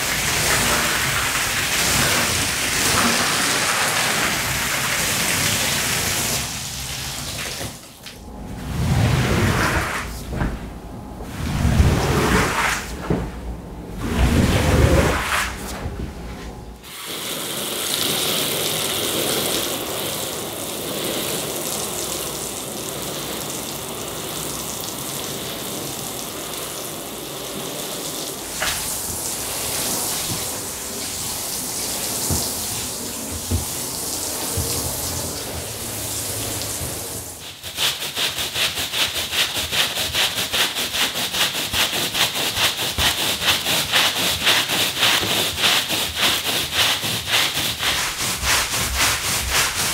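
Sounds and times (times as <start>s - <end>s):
push broom scrubbing wet rug: 0.0s - 7.9s, 8.6s - 10.6s, 11.3s - 13.3s, 13.9s - 24.7s, 25.4s - 49.9s
squeegee pushing water off rug: 0.0s - 7.9s, 14.0s - 15.9s, 28.1s - 49.9s.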